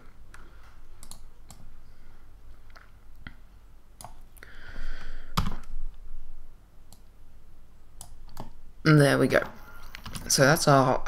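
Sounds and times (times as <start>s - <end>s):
mouse and keyboard clicks: 1.0s - 1.7s.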